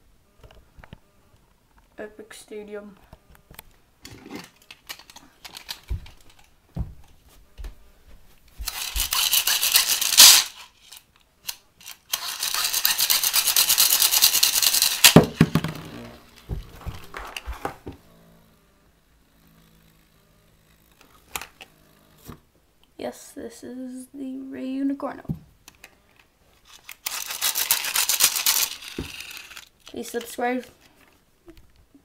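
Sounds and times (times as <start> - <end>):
spinning top in plastic stadium: 8.6 - 17.8, 26.6 - 30.7
fast ratcheting clicks: 8.7 - 10.6, 11.8 - 15.2, 26.8 - 30.0
sharp plastic clack: 8.7 - 13.3.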